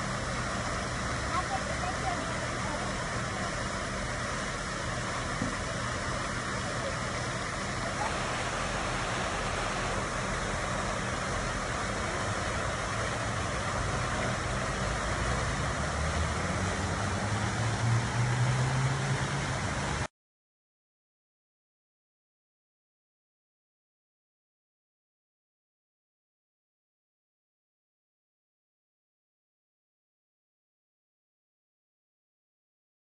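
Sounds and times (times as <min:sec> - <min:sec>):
approaching vehicle engine hum: 0:07.9 - 0:20.1
passing cars: 0:08.0 - 0:12.2, 0:13.0 - 0:20.1.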